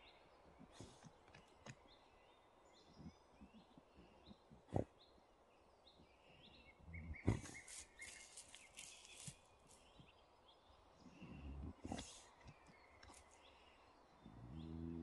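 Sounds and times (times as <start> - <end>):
small birds chirping: 0.0 - 15.0
dog paws digging in soil: 7.3 - 9.9.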